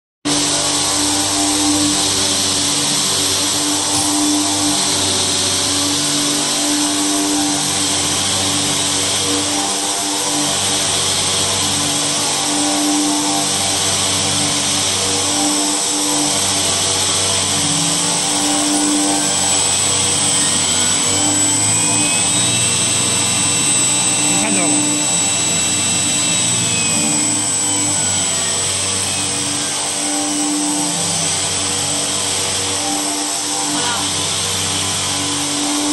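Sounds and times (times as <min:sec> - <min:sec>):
mixer motor hum and hiss: 0:00.3 - 0:35.9
high whine: 0:00.4 - 0:08.7, 0:16.4 - 0:35.8.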